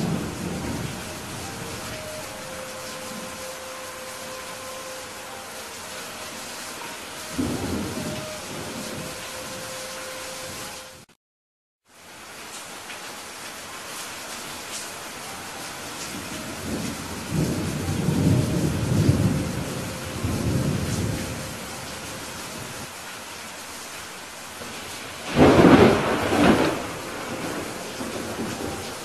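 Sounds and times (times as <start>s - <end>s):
steady rain: 0.0s - 11.1s, 11.8s - 29.0s
thunder rumbling: 0.0s - 11.1s, 15.9s - 22.9s, 24.6s - 29.0s
sharp thunderclap: 25.3s - 28.8s.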